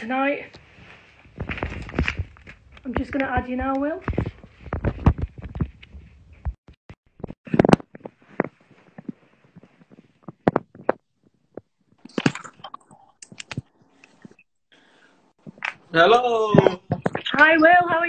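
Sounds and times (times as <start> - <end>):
rustling: 0.2 - 6.6.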